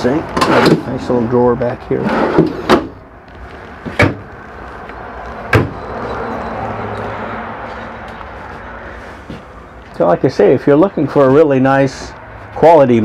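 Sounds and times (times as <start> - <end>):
wooden cabinet doors knocking shut: 4.0 - 4.2, 5.5 - 5.8.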